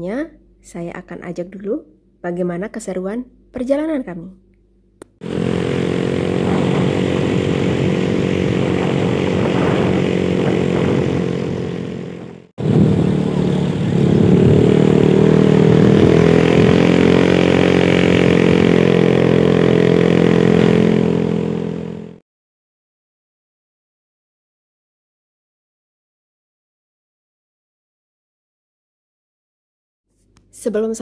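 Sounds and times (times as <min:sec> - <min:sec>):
motorcycle engine running: 0:05.1 - 0:22.2
wind rushing: 0:05.2 - 0:21.2.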